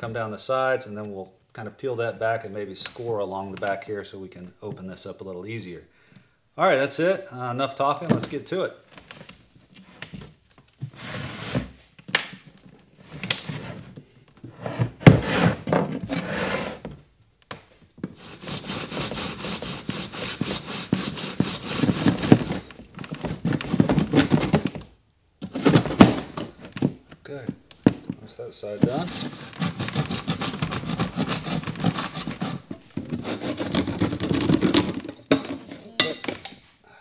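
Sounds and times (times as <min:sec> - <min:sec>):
knocks and thuds of handling: 0:08.0 - 0:08.4, 0:21.8 - 0:30.7, 0:32.6 - 0:36.6
hand saw cutting plastic: 0:18.2 - 0:22.7, 0:28.8 - 0:34.9.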